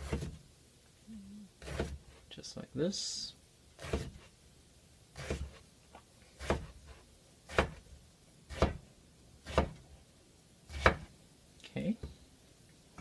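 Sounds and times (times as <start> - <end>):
knife chopping on wooden board: 0.0 - 0.4, 1.6 - 2.2, 3.8 - 4.3, 5.2 - 5.6, 6.4 - 7.8, 8.5 - 9.8, 10.7 - 11.1.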